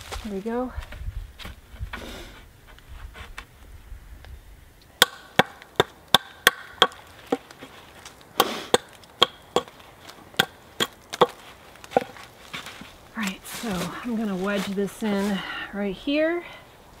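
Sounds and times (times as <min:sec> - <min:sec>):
axe chopping wood: 0:05.0 - 0:07.5, 0:08.4 - 0:12.2.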